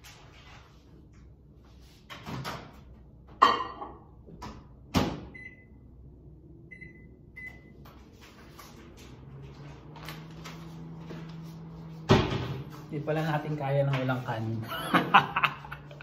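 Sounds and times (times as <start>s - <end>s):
keypad beeps: 5.3s - 5.8s, 6.7s - 7.8s.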